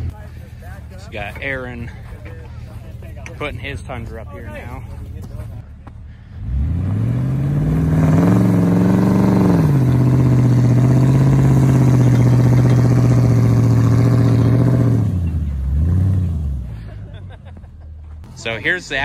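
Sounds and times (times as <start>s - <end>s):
truck engine revving under load: 5.9s - 17.4s.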